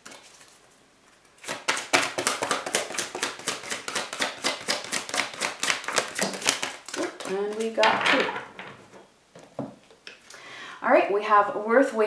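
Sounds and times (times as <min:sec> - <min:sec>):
cards being shuffled: 0:00.0 - 0:08.6.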